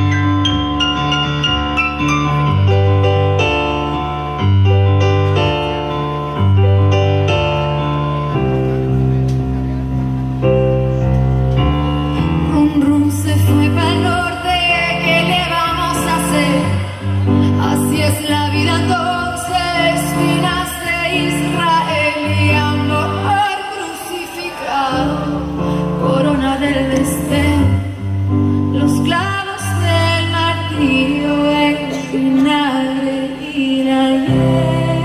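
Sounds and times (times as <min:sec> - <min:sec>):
live pop band: 0:00.0 - 0:35.0
woman singing lead: 0:12.4 - 0:35.0.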